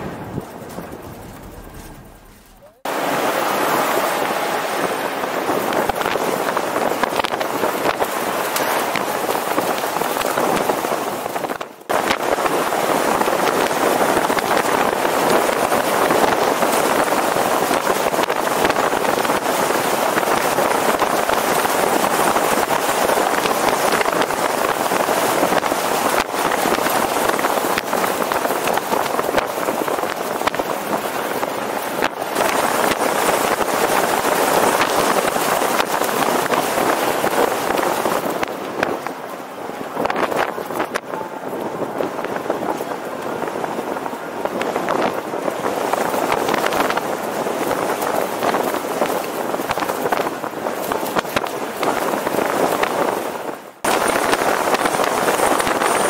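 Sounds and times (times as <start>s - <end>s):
car road noise: 0.0s - 9.9s
wind rushing past car: 0.0s - 56.0s.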